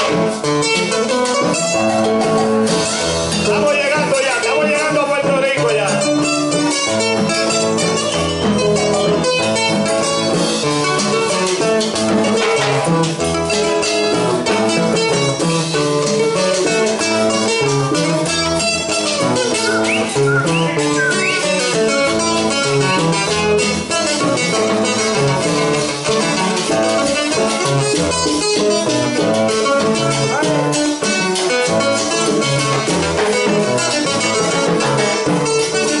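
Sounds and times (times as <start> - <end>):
acoustic guitar melody: 0.0 - 36.0
latin string band music: 0.0 - 36.0
bass line: 14.5 - 25.7.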